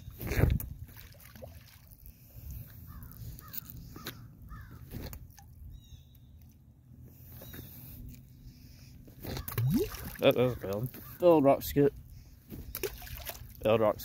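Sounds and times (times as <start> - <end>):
crow cawing: 2.9 - 4.8, 9.4 - 11.4.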